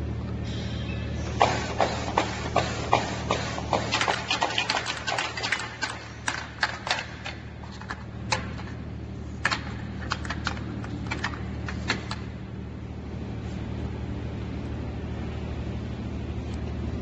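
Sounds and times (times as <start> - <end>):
low motor hum: 0.0 - 17.0
plastic cups clicking on conveyor: 1.4 - 8.8, 9.4 - 12.4.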